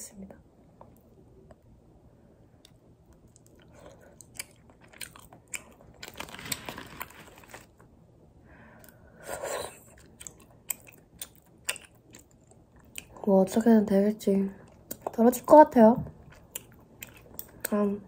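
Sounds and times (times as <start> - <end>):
person chewing crunchy food: 2.7 - 7.8, 8.8 - 13.3, 14.6 - 15.2, 16.2 - 17.8.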